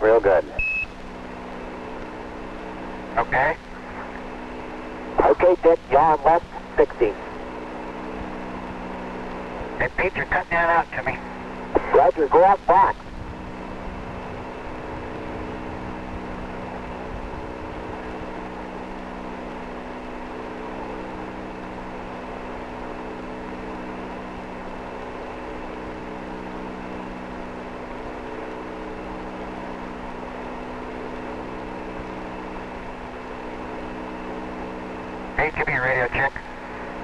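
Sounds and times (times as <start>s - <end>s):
radio static hiss: 0.0s - 0.6s, 3.1s - 7.4s, 9.7s - 13.0s, 35.3s - 37.0s
constant hum of held tones: 0.0s - 37.0s.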